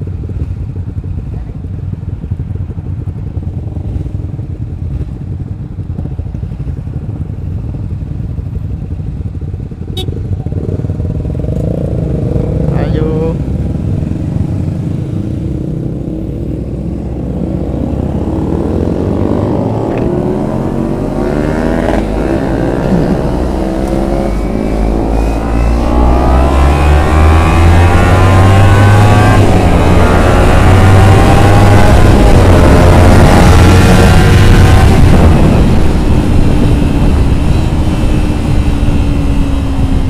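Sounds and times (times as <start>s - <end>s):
motorcycle engine accelerating: 0.0s - 40.0s.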